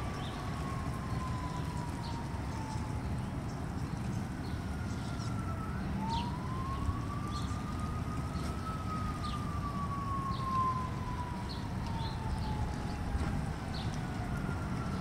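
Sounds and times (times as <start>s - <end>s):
distant siren wailing: 0.0s - 15.0s.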